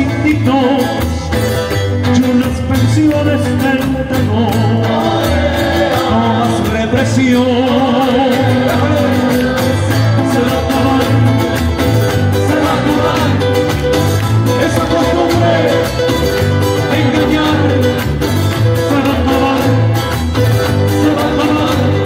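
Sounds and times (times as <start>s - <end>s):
acoustic guitars: 0.0s - 22.0s
voices singing through speakers: 2.5s - 22.0s.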